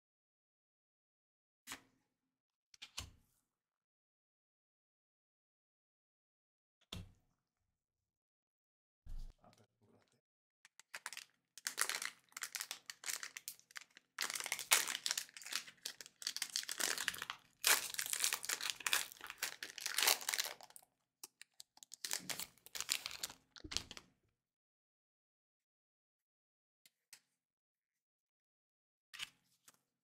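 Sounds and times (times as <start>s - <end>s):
foil wrapper crinkling and tearing: 10.7s - 24.0s.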